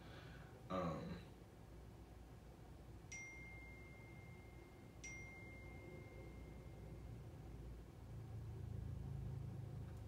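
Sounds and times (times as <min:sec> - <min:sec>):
faint single-note chimes: 0:03.1 - 0:07.4.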